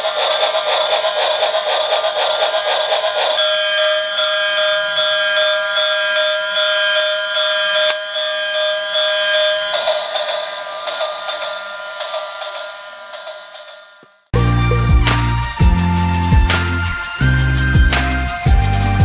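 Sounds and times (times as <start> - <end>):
toy electronic siren tone: 2.4 - 14.3.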